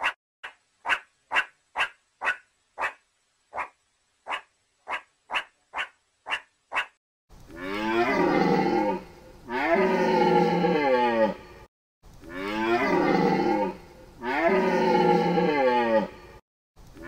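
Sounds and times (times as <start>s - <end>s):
meerkat barking calls: 0.0s - 7.0s.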